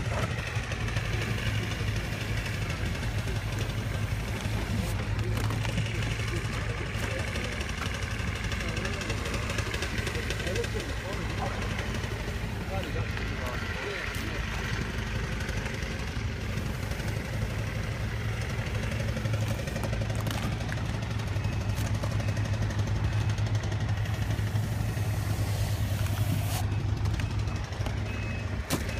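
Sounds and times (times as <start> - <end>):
machine engine hum: 0.0 - 28.9.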